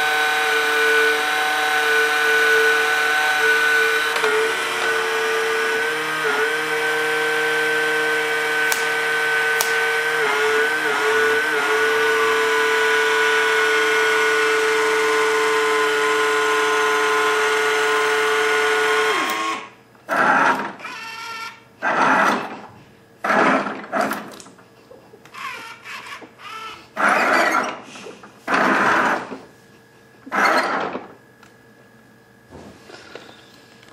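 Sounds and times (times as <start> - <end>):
toy robot gear motors whirring: 20.2 - 22.4, 25.2 - 27.7.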